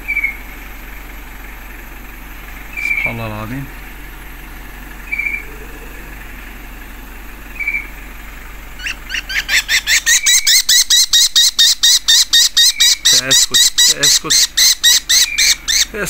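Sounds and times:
kestrels calling shrill kee calls: 0.0 - 0.4, 2.7 - 3.2, 5.0 - 5.5, 7.5 - 8.0, 8.7 - 16.0.

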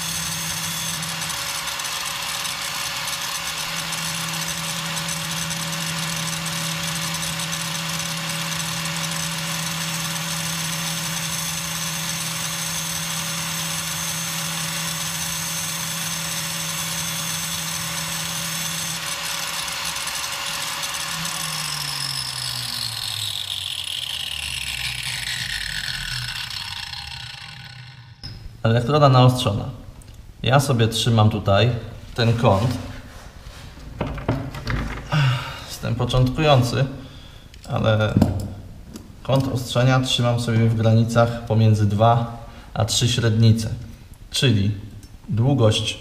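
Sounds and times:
grinder winding down whine: 0.0 - 28.4
angle grinder grinding electrode: 0.0 - 28.6.

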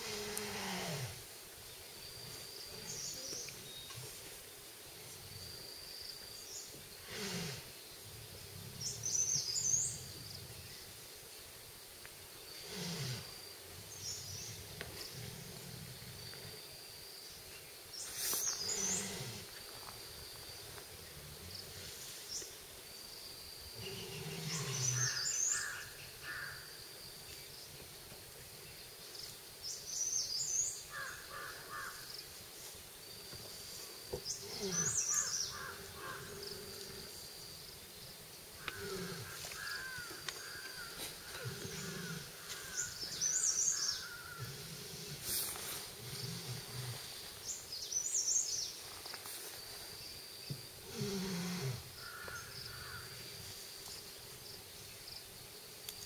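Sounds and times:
tiger growling: 0.0 - 1.2, 6.7 - 10.8, 12.5 - 16.7, 18.2 - 19.7, 23.6 - 25.7, 34.1 - 37.6, 38.5 - 47.5, 50.8 - 53.6
birds calling: 18.0 - 19.5, 23.8 - 26.8, 29.7 - 32.2, 33.4 - 37.2, 37.9 - 48.9, 50.5 - 54.1.

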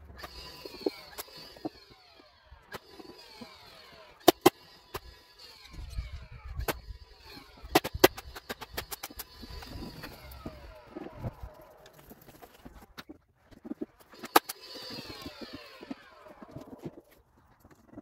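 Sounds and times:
sharp cracks: 4.2 - 5.2, 6.5 - 17.7.

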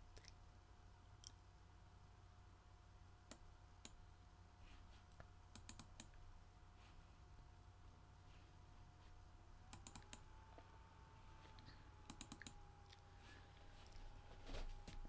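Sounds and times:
faint steady whine: 0.0 - 15.0
mouse and keyboard clicks: 9.7 - 10.3, 12.0 - 12.6.

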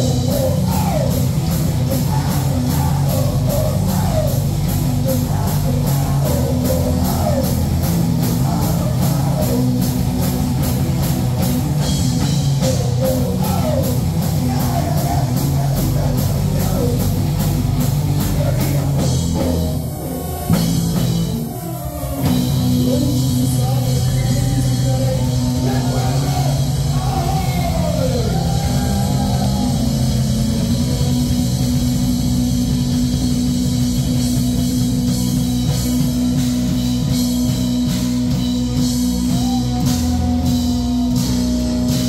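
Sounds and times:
man singing: 0.0 - 10.2, 11.8 - 20.6, 21.5 - 29.8
live rock band playing: 0.0 - 42.0.

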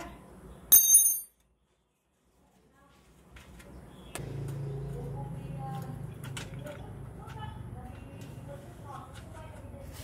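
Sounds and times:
sharp metallic clink: 0.7 - 1.4.

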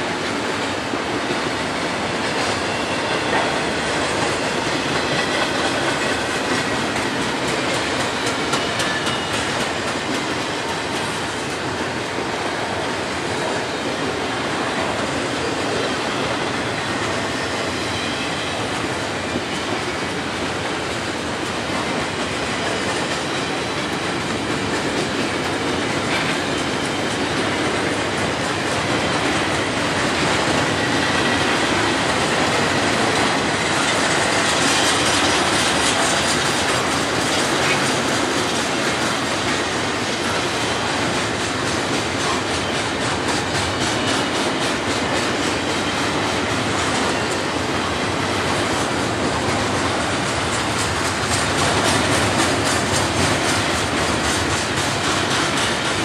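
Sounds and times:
train wheels rumbling on rails: 0.0 - 56.0
faint high wheel squeal: 15.9 - 18.8.

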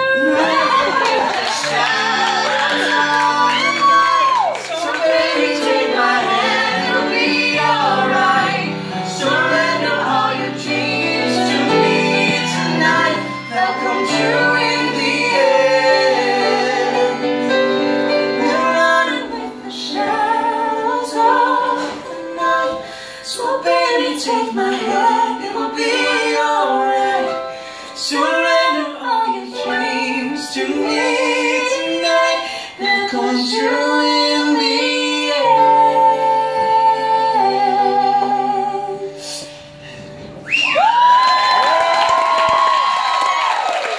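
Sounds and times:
piano accompaniment: 0.0 - 43.9
woman singing: 18.1 - 27.4, 28.0 - 39.5.

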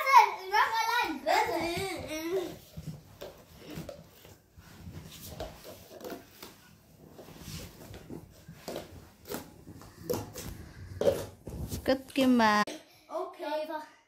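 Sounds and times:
plastic cups clacking: 2.2 - 11.6.

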